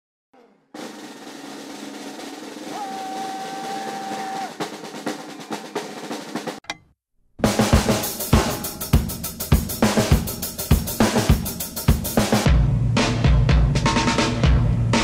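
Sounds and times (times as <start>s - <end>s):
drum kit playing: 0.8s - 6.6s, 7.4s - 15.0s
snare drum roll: 0.8s - 6.6s.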